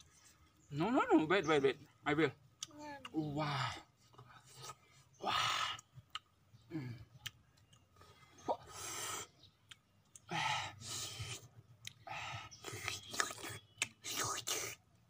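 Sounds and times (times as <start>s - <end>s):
mouth clicks: 5.5s - 7.9s, 8.5s - 10.3s, 10.9s - 14.8s.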